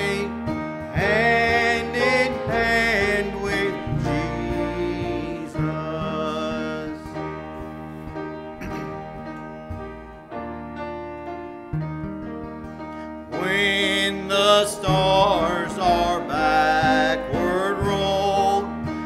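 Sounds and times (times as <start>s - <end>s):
congregation singing a hymn: 0.0s - 9.1s, 13.3s - 19.0s
acoustic guitar: 0.0s - 19.0s
piano: 0.0s - 19.0s.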